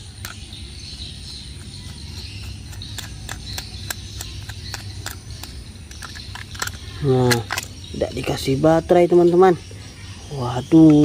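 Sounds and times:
insects chirping: 0.0s - 11.0s
screwdriver scraping on plastic: 1.7s - 7.7s.

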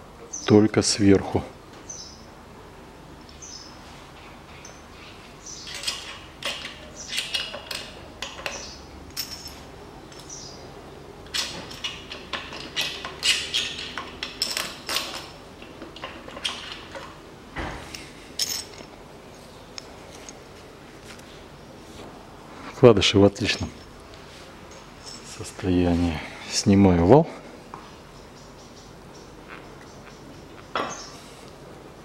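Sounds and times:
metal parts clinking: 5.6s - 10.4s, 11.3s - 17.2s, 17.9s - 19.0s, 25.0s - 25.5s.

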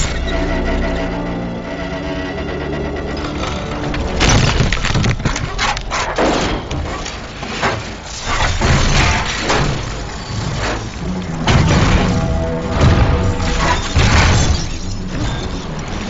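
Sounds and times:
low rumble: 0.0s - 5.4s
heavy impacts and crashes: 3.0s - 16.0s.

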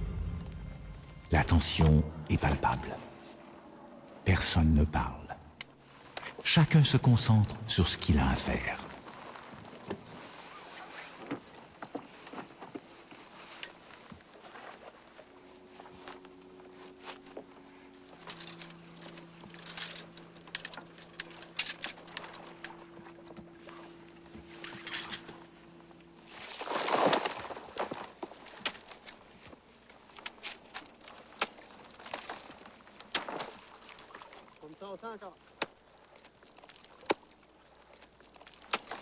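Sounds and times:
loud rush of noise: 0.0s - 3.0s
metal climbing gear clinking: 0.0s - 3.0s, 15.8s - 34.6s, 35.7s - 39.0s
faint low hum: 0.0s - 9.2s, 14.4s - 36.3s.

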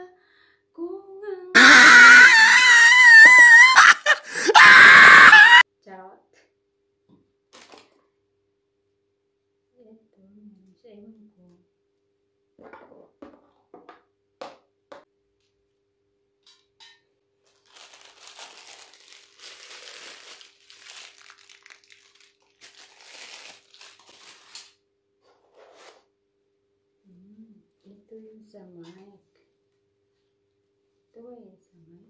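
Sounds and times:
packaging crinkling: 17.4s - 24.8s.

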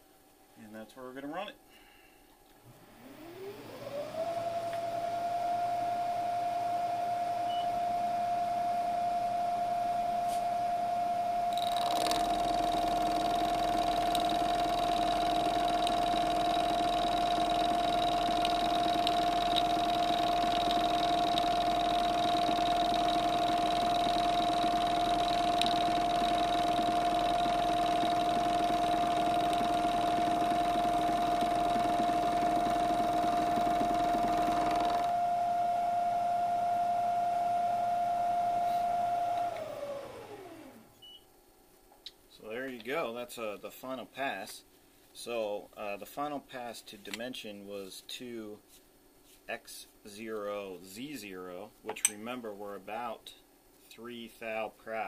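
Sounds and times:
milling machine spindle whine: 2.7s - 40.8s
higher cutting whine: 2.7s - 40.9s
click: 4.7s - 4.9s.

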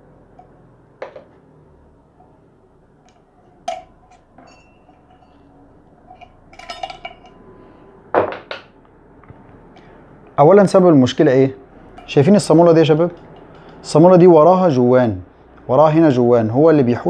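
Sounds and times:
metal parts clicking and clinking: 3.0s - 7.5s, 11.9s - 14.0s.

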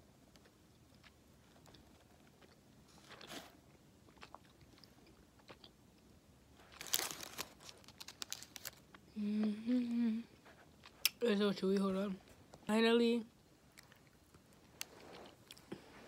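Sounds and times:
chewing candy: 0.3s - 9.1s
person humming: 9.1s - 10.3s.

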